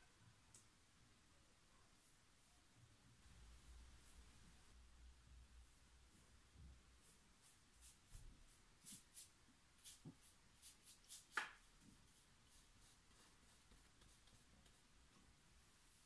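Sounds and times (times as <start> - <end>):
paintbrush strokes on canvas: 5.6 - 15.0
brush tap: 9.8 - 10.3, 10.9 - 12.0.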